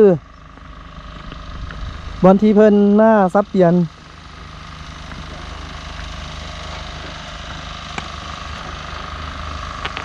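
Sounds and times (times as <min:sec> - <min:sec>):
low engine rumble: 0:00.0 - 0:10.0.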